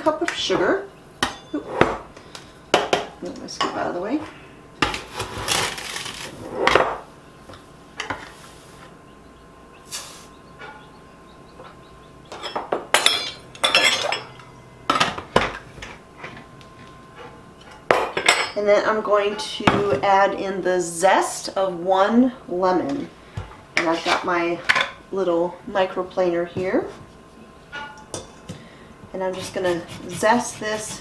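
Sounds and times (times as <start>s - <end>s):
metal spoons clinking on bowl: 12.3s - 14.5s.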